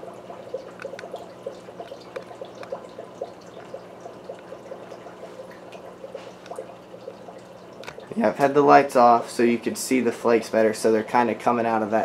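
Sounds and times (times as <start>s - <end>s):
aquarium filter water splashing: 0.0s - 12.0s
steady low hum: 0.0s - 12.0s.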